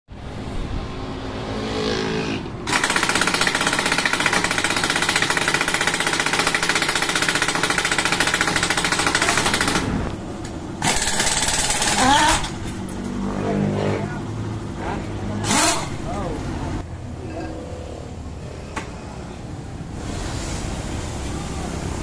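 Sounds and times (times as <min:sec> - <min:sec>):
impact wrench whirring: 0:02.6 - 0:09.9, 0:10.8 - 0:12.7, 0:15.4 - 0:16.0
air impact wrench hammering: 0:02.6 - 0:10.1, 0:10.8 - 0:13.1, 0:15.4 - 0:16.0.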